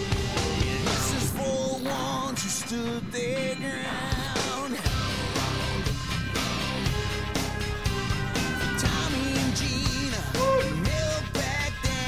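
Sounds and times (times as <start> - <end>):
song with sung melody and beat: 0.0 - 12.0.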